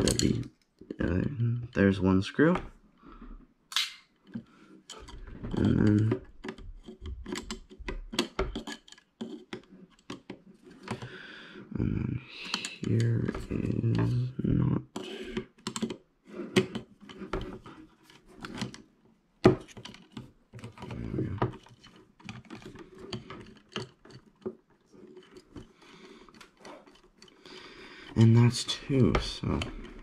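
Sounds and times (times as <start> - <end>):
screwdriver clicking and scraping: 4.2 - 11.1, 19.6 - 27.4.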